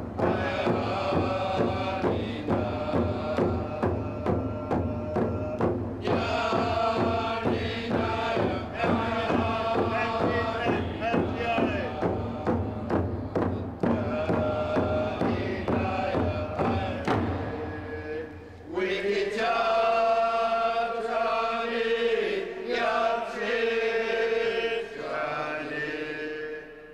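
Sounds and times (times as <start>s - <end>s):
steady drum beat: 0.0s - 18.1s
voices chanting: 0.0s - 26.9s.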